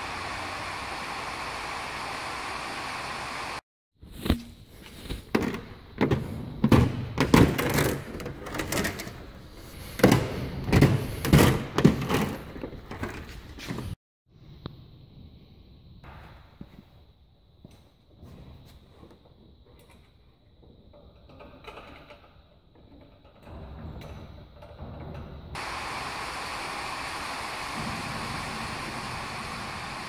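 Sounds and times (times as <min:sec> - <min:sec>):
knocks thuds and clatter: 0:05.3 - 0:09.0
steady rushing noise: 0:25.6 - 0:30.0.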